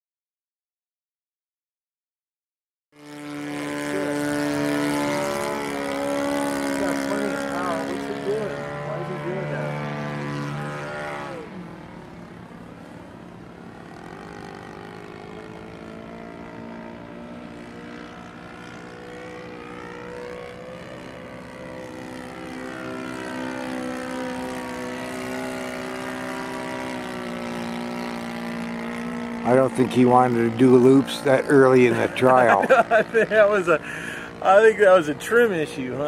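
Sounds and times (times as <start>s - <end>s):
model airplane engine droning: 3.0s - 36.0s.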